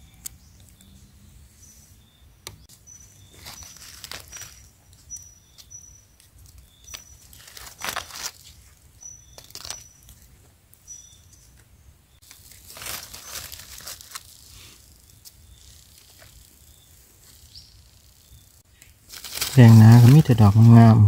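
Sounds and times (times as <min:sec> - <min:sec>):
dry leaves rustling and crackling: 0:03.0 - 0:10.2, 0:12.2 - 0:18.2, 0:19.0 - 0:20.8.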